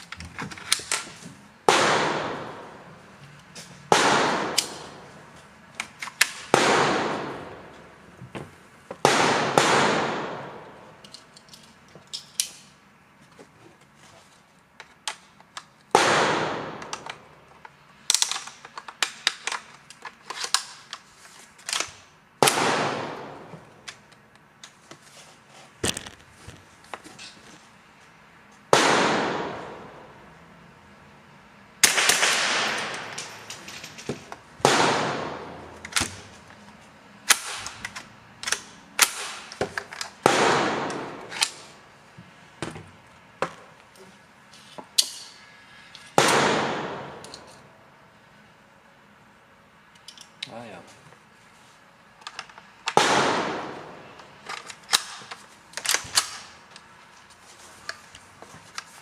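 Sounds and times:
gunshots with echo: 1.7s - 2.8s, 3.9s - 5.0s, 6.5s - 7.7s, 9.0s - 10.6s, 28.8s - 30.0s, 31.8s - 33.1s, 34.6s - 35.6s
rounds clicking into magazine: 16.8s - 22.0s, 54.2s - 56.9s.

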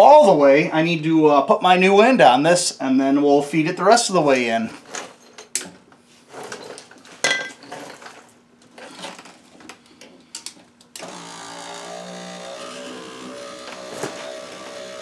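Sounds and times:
power window motor whirring: 11.0s - 15.0s.

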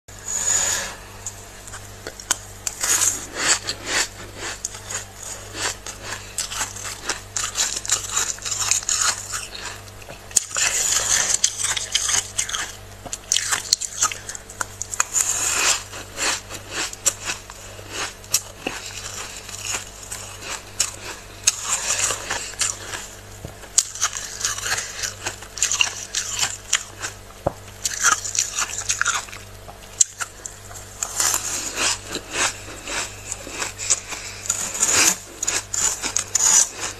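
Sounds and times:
frost being scraped: 0.1s - 1.9s, 2.6s - 9.8s, 30.9s - 36.9s.

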